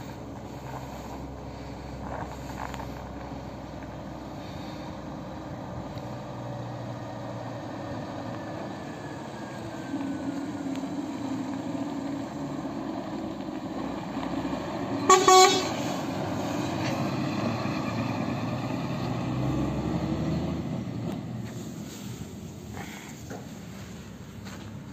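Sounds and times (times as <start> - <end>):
fire engine diesel engine running: 0.0 - 24.9
short horn blasts: 15.0 - 16.0.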